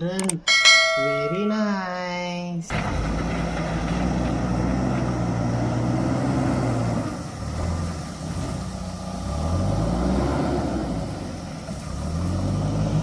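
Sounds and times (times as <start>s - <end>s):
diesel engine working under load: 2.7s - 13.0s.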